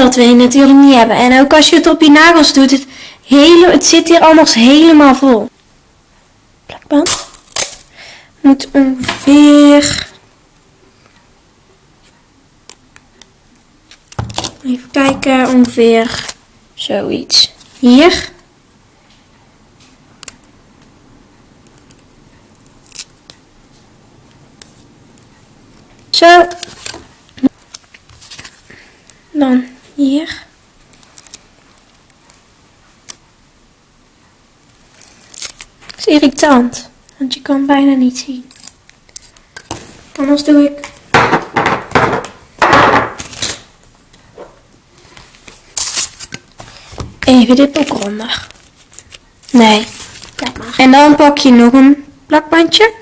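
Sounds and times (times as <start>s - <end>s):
adhesive tape clicks and crinkles: 7.0s - 7.9s, 12.6s - 14.7s, 15.5s - 16.4s, 20.2s - 20.9s, 21.6s - 23.4s, 26.4s - 29.2s, 30.8s - 32.4s, 33.0s - 33.3s, 34.6s - 36.1s, 38.4s - 39.8s, 43.2s - 44.2s, 45.2s - 46.7s, 47.6s - 50.7s
objects knocking on a tabletop: 41.1s - 43.2s.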